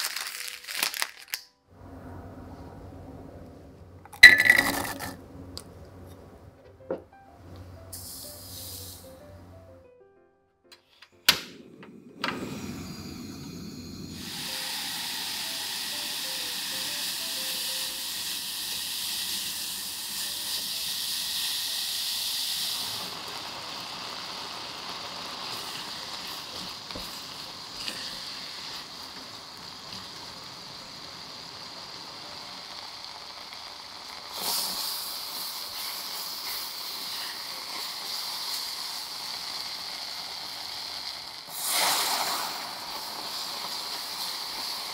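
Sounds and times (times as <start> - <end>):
apples sizzling in a saucepan: 7.9 - 9.3, 12.8 - 44.9.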